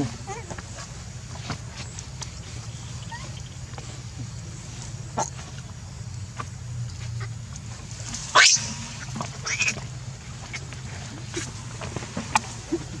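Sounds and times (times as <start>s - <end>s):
steady low hum: 0.0s - 13.0s
monkey squealing: 3.0s - 3.4s, 8.3s - 9.8s.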